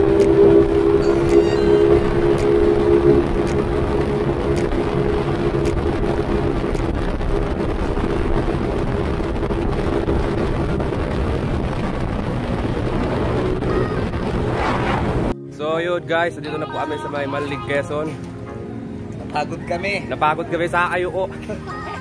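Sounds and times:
wind buffeting microphone: 0.0 - 15.4
steady drone: 0.0 - 21.3
road noise: 0.0 - 22.0.

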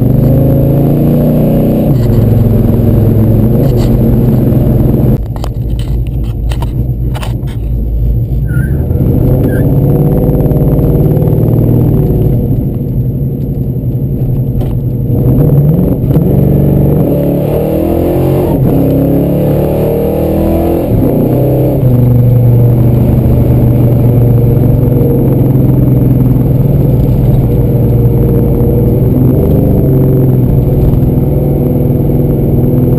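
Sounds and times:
car engine accelerating: 0.0 - 32.9.

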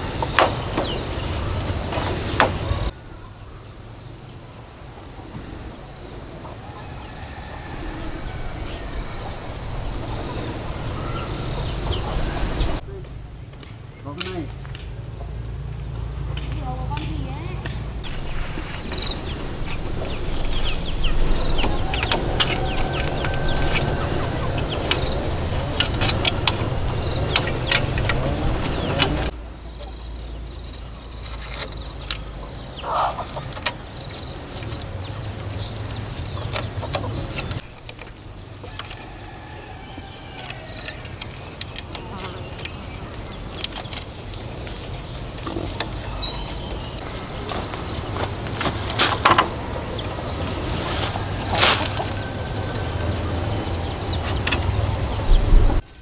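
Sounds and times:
insects chorus: 0.0 - 56.0
bamboo poles knocking and scraping: 16.4 - 29.3, 40.3 - 50.0.

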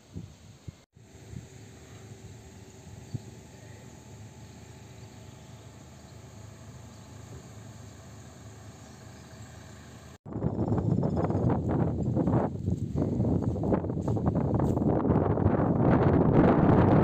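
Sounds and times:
faint low hum: 1.0 - 9.9.

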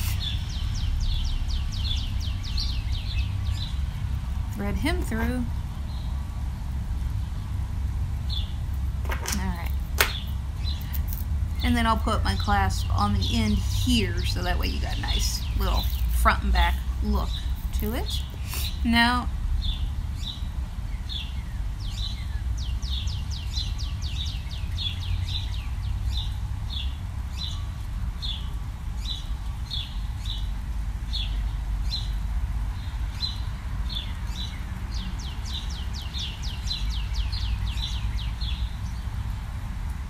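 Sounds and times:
small bird chirping: 0.0 - 6.1, 8.3 - 18.9.

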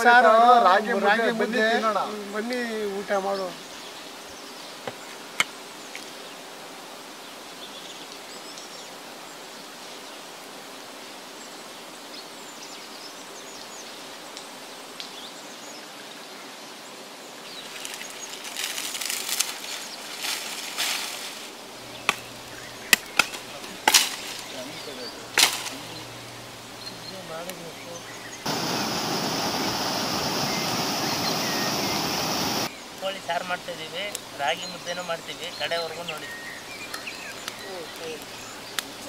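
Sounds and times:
dry palm fronds rustling: 17.4 - 39.0
fronds snapped and beaten with stick: 17.6 - 26.1, 35.9 - 39.0
faint bird calls: 21.8 - 32.8.

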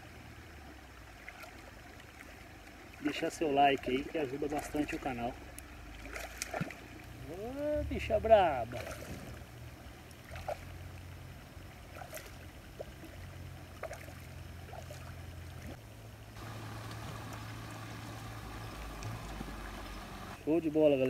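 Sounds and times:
rush of water: 0.0 - 21.0
water splashing and trickling: 0.0 - 21.0
low rumble: 15.5 - 20.4.

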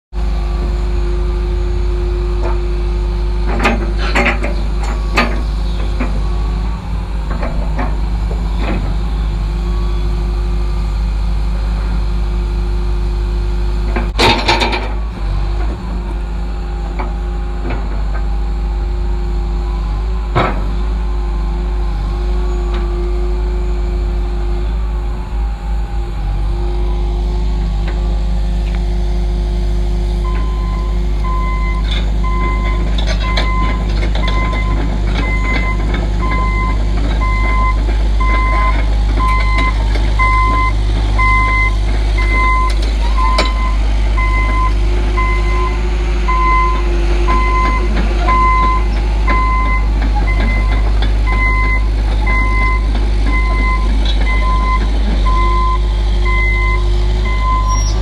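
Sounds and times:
excavator diesel engine running: 0.1 - 58.0.

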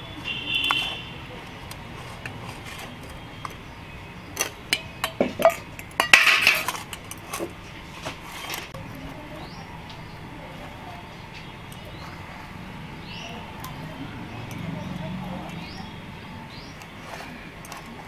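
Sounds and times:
clinks against a steel container: 4.3 - 7.6.

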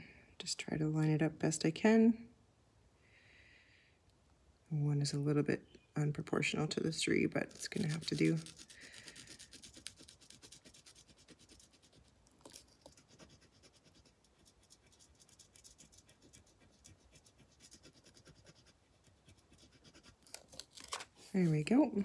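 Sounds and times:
stylus scratching: 7.4 - 20.5.

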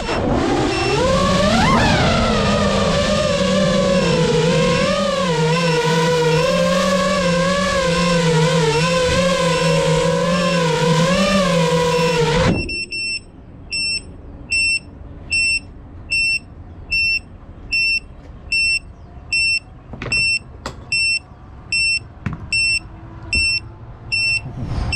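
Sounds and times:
loud wavering hum: 0.0 - 15.0
short high beeps: 11.9 - 21.2, 21.8 - 24.5.

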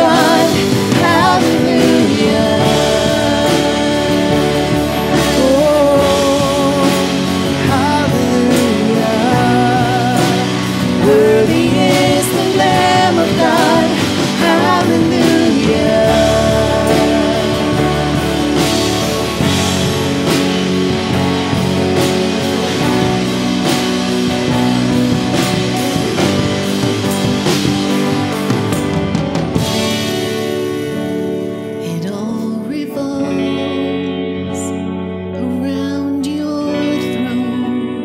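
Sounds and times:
person singing melody: 0.0 - 20.3, 31.8 - 38.0
band with guitars playing: 0.0 - 38.0.

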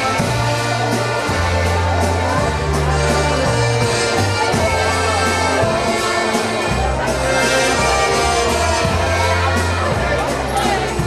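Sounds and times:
bass line: 0.0 - 11.0
button accordion: 0.0 - 11.0
drum hits: 0.0 - 11.0.

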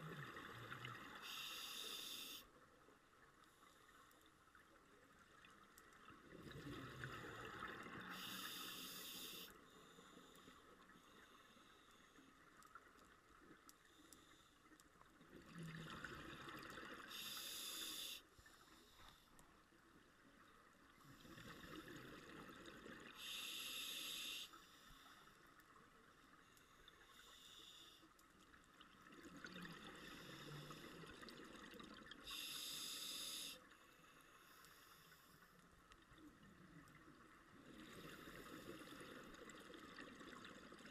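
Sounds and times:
diver breathing through regulator: 23.2 - 25.1, 32.3 - 33.6.

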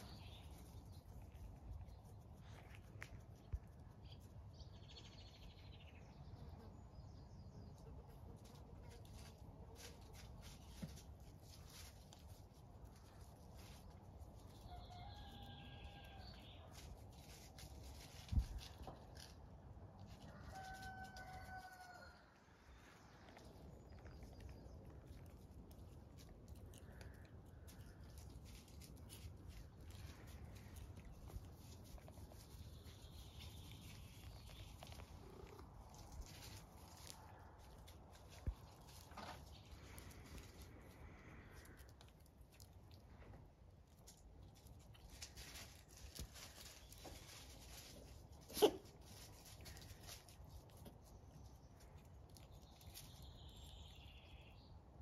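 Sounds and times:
faint rooster crowing: 14.5 - 16.9, 20.0 - 23.1.

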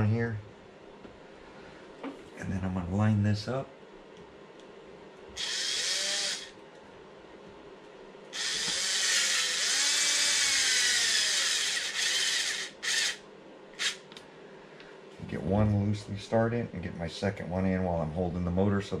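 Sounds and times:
impact driver spinning screws: 5.4 - 6.5, 8.4 - 13.2, 13.8 - 14.0.

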